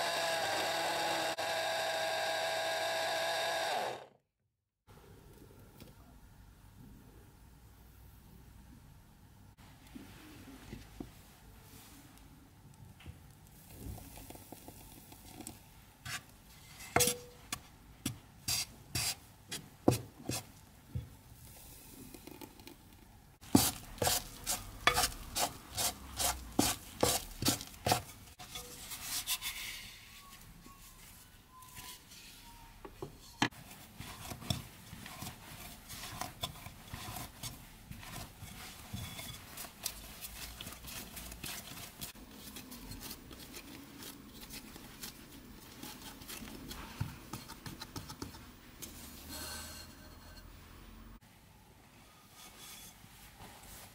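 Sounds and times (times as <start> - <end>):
hands kneading dough: 17.4 - 32.6, 33.5 - 49.1.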